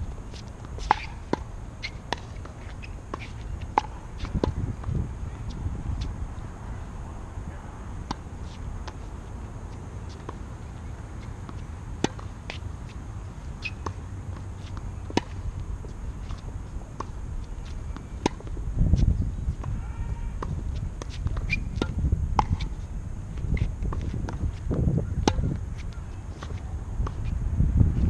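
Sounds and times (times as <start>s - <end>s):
tennis ball struck by racquets: 2.1s - 4.6s, 13.6s - 15.4s, 17.9s - 18.6s, 20.4s - 22.7s, 23.6s - 25.6s
wind rumble on microphone: 3.0s - 12.0s, 12.8s - 28.0s.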